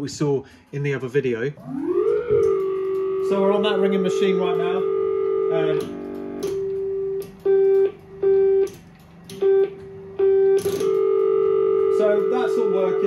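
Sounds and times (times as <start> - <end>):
pulsed telephone ringing tone: 1.6 - 8.7, 9.4 - 13.0
sharp relay clicks: 5.7 - 13.0.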